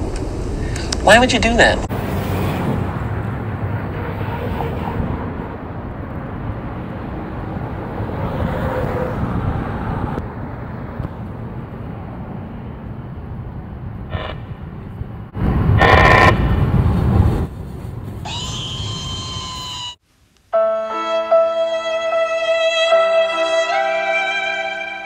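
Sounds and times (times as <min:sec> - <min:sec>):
cars driving past: 0:01.8 - 0:18.2.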